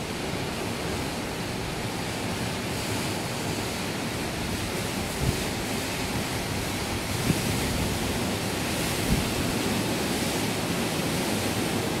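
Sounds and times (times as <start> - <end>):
wind and water noise: 0.0 - 12.0
wind gusts thumping microphone: 4.4 - 12.0.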